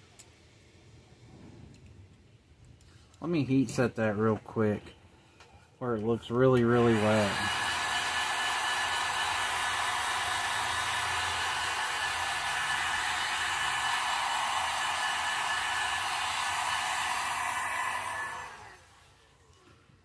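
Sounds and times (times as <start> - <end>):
heat gun blowing: 6.6 - 19.2.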